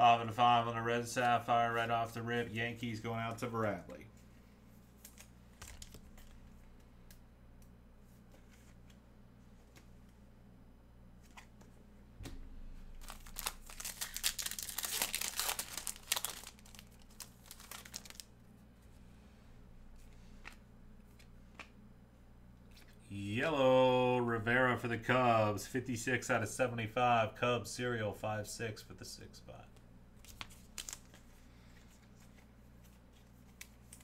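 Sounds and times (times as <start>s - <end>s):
wrapper tearing and crinkling: 5.0s - 6.3s, 13.0s - 18.3s, 30.2s - 31.2s.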